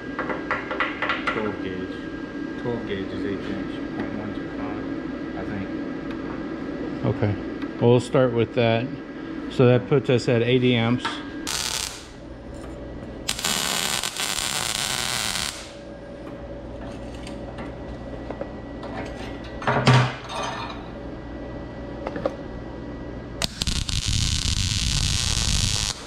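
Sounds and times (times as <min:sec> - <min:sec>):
welding arc buzzing: 0:11.4 - 0:15.9, 0:23.4 - 0:26.0.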